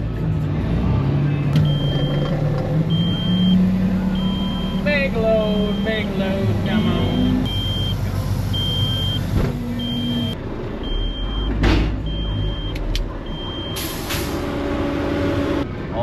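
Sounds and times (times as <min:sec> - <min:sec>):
diesel truck engine running: 0:00.0 - 0:16.0
high warning beeper: 0:01.6 - 0:02.2, 0:02.9 - 0:06.1, 0:07.1 - 0:13.9.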